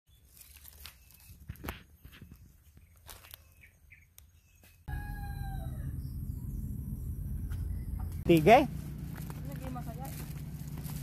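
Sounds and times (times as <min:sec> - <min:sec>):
footsteps crunching dry leaves: 0:00.1 - 0:03.5, 0:07.5 - 0:11.0
faint bird chirps: 0:00.1 - 0:08.3
loud low rumble: 0:04.9 - 0:11.0.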